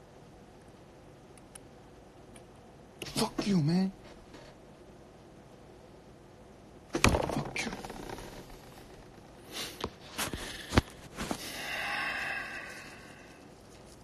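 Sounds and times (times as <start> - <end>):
rustling: 7.0 - 14.0.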